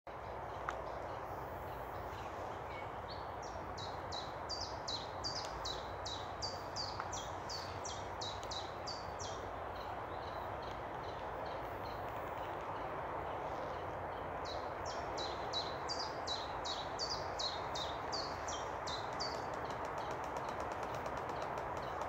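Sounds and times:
steady rushing background noise: 0.1 - 22.0.

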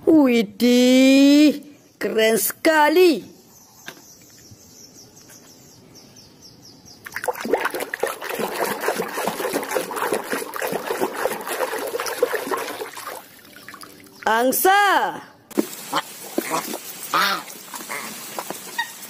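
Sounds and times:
hand sloshing toys through water: 7.1 - 14.3, 15.6 - 18.8.

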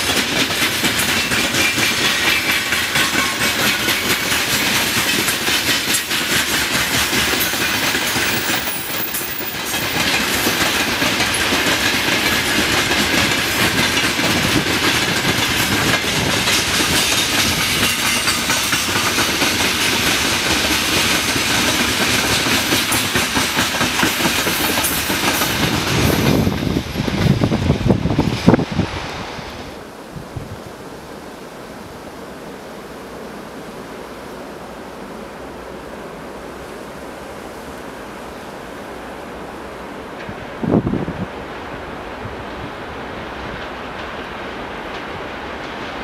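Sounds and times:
train wheels clattering on rails: 0.0 - 29.4, 42.2 - 46.0.

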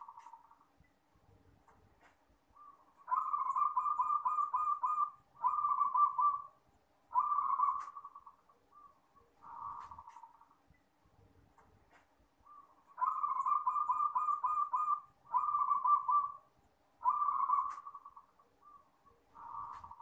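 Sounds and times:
dove cooing: 2.6 - 10.4, 12.5 - 16.4, 17.0 - 20.0.

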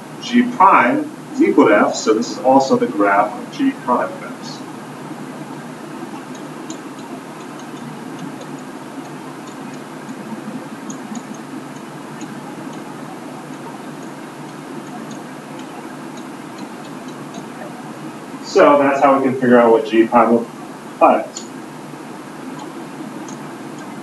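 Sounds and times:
low hum: 0.0 - 24.0.

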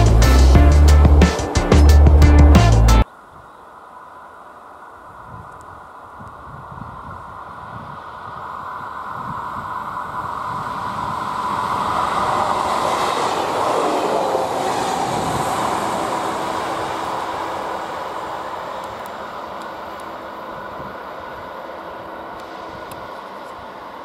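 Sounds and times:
railcar passing by: 0.0 - 3.1, 7.0 - 24.0
steady high tone: 9.8 - 24.0.

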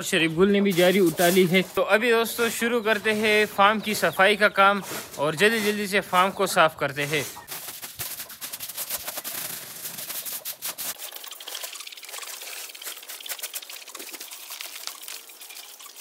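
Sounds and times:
hand brooms sweeping dirt: 0.4 - 11.2, 12.3 - 14.2.

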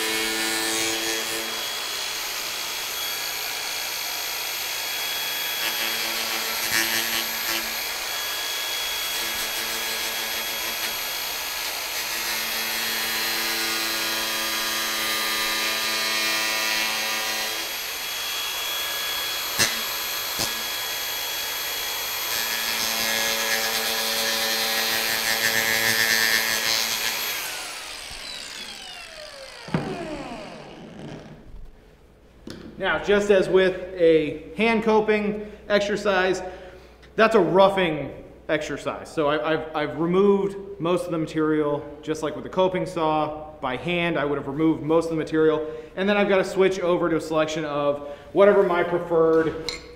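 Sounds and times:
angle grinder grinding wood: 0.0 - 31.5
grinder winding down whine: 1.2 - 11.9, 17.6 - 31.5.

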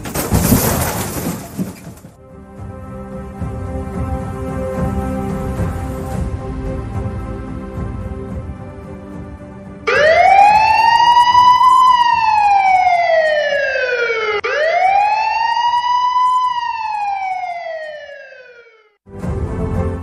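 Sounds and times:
siren wailing over speakers: 9.9 - 19.0.

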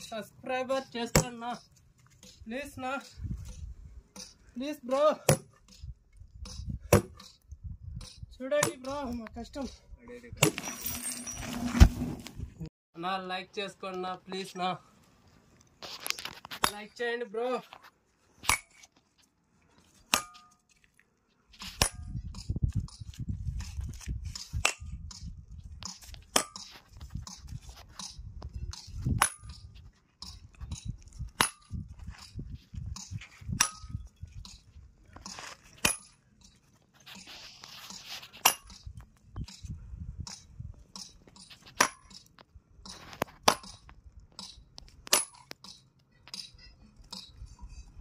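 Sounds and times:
sledgehammer striking steel wedges: 0.9 - 3.2, 4.1 - 7.4, 18.4 - 18.9, 20.0 - 20.8, 21.6 - 23.1, 24.3 - 32.4, 33.0 - 36.6, 37.9 - 38.9, 40.3 - 47.9.

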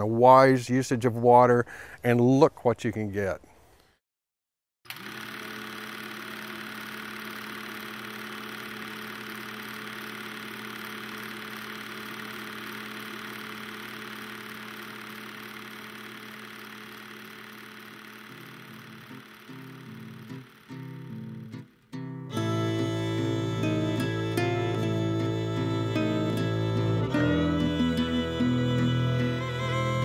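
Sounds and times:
film projector whirring: 4.9 - 21.7.

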